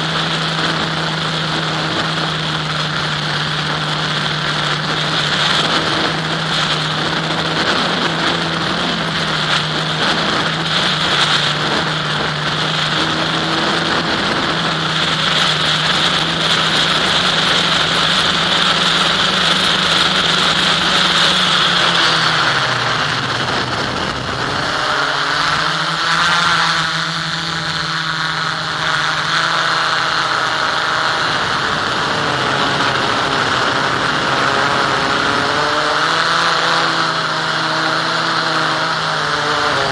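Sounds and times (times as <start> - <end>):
model aircraft motor droning: 0.0 - 39.9
wind rush on microphone: 0.0 - 39.9.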